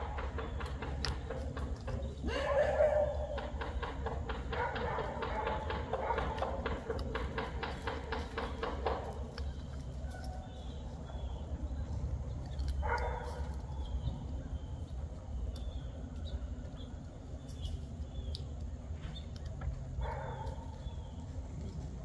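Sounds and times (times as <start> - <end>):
dog barking: 2.3 - 3.5, 4.5 - 6.7, 12.8 - 13.5, 20.0 - 20.7.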